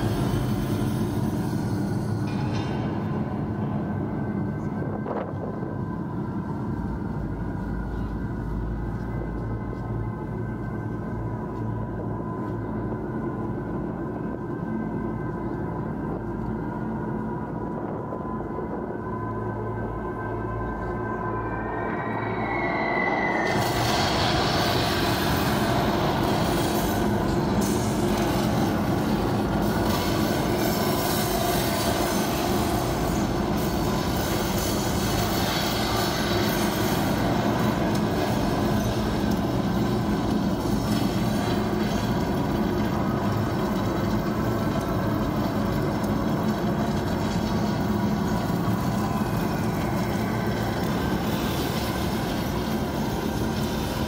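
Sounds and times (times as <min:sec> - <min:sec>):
dense mechanical rumble: 0:00.0 - 0:54.0
low hum: 0:00.0 - 0:54.0.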